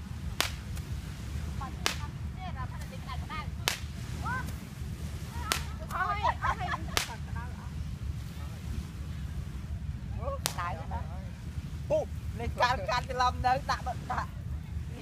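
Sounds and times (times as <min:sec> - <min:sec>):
low steady rumble: 0:00.0 - 0:15.0
sharp cracks: 0:00.3 - 0:01.0, 0:01.8 - 0:02.2, 0:03.6 - 0:04.6, 0:05.4 - 0:06.0, 0:06.9 - 0:07.2.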